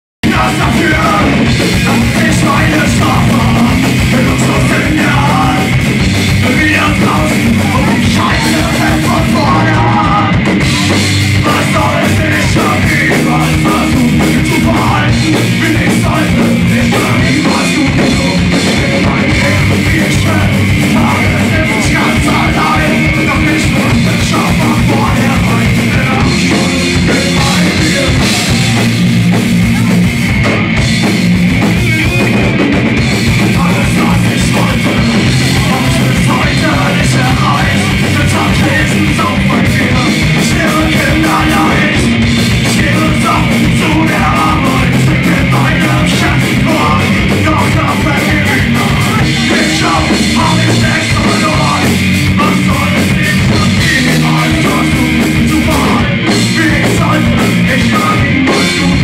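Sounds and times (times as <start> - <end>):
driving drum kit: 0.2 - 59.0
electric guitars: 0.2 - 59.0.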